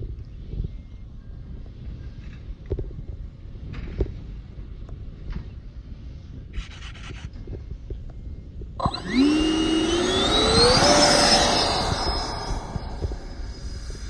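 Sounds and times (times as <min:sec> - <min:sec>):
light wind: 0:00.0 - 0:14.0
model jet fan motors whining: 0:08.8 - 0:14.0.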